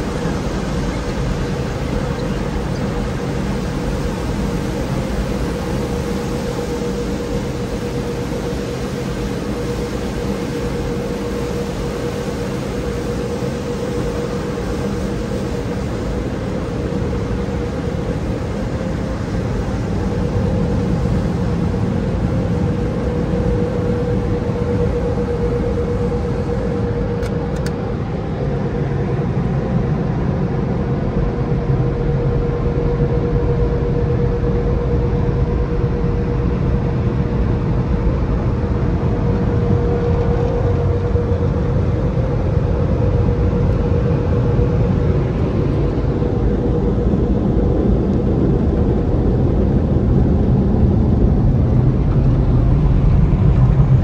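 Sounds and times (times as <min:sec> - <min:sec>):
dryer blowers rushing air: 0:00.0 - 0:54.0
steady hum: 0:00.0 - 0:54.0.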